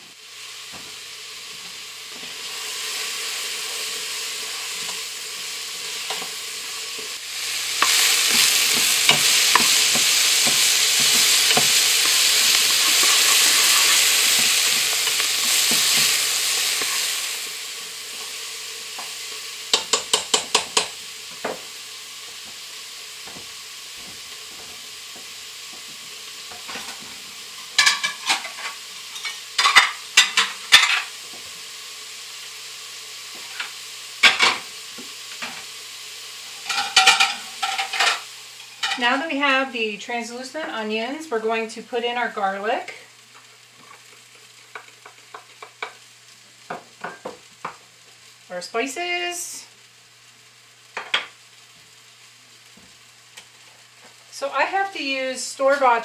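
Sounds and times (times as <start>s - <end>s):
vegetables sizzling in oil: 0.0s - 56.0s
plates clinking: 36.7s - 39.0s.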